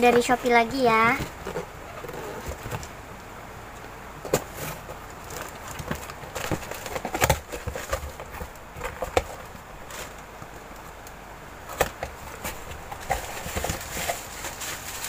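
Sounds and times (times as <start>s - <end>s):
cardboard boxes knocking and scuffing: 11.8s - 14.8s.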